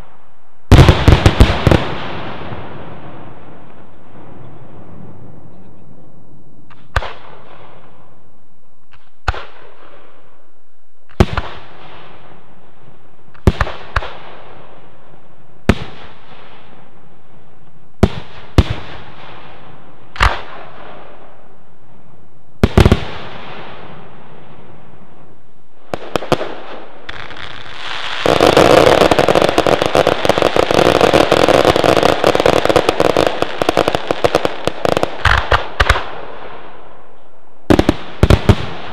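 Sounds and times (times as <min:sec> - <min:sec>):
firework crackle: 0:00.0 - 0:04.0, 0:22.6 - 0:36.9, 0:37.6 - 0:38.9
firework battery rapid crackling: 0:27.1 - 0:36.1.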